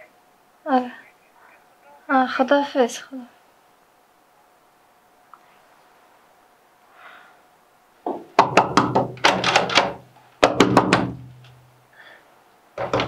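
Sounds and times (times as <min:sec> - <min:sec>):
loud knocking on door: 0:08.1 - 0:11.3, 0:12.8 - 0:13.0.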